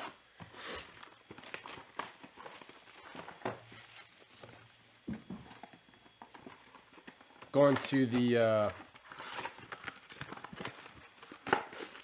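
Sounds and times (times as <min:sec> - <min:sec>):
plastic shrink wrap crinkling: 0:00.8 - 0:04.7, 0:06.8 - 0:12.0.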